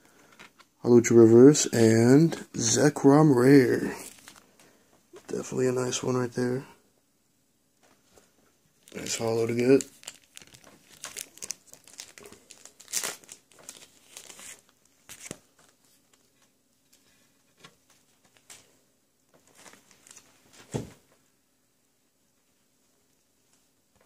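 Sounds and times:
plastic and foil crinkling: 0:03.9 - 0:04.5, 0:08.8 - 0:17.1, 0:19.4 - 0:20.4.

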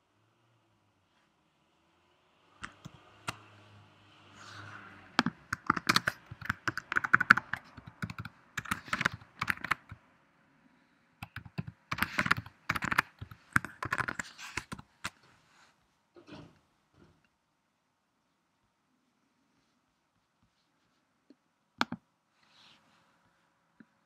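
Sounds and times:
computer keyboard key clicks: 0:05.2 - 0:10.0, 0:11.2 - 0:14.8.

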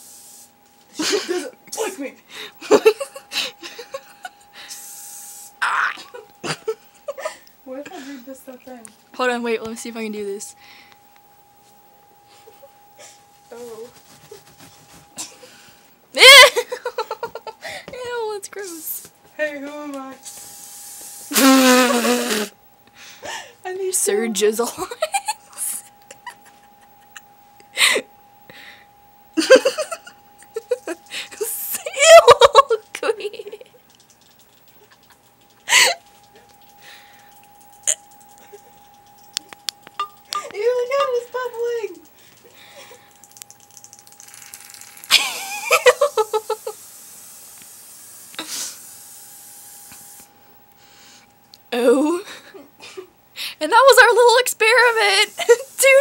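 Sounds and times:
aerosol can spraying: 0:00.0 - 0:00.5, 0:20.3 - 0:22.5
girl giggling: 0:01.0 - 0:01.6, 0:02.6 - 0:04.5, 0:06.0 - 0:08.3, 0:16.2 - 0:17.9, 0:24.6 - 0:28.1, 0:29.4 - 0:33.8, 0:34.8 - 0:36.0, 0:45.1 - 0:46.8, 0:51.9 - 0:53.1.

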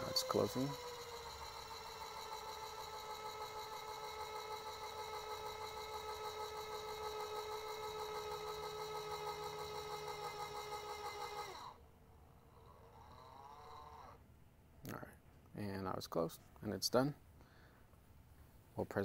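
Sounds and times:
electric motor whining: 0:00.0 - 0:11.8.

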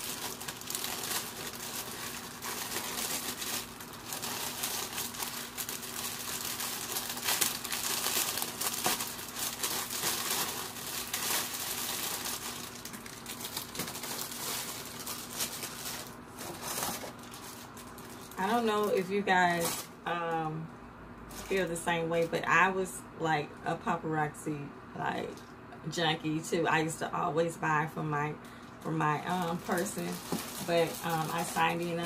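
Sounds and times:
plastic bags crinkling: 0:00.0 - 0:20.0, 0:21.3 - 0:21.7, 0:28.6 - 0:32.0.

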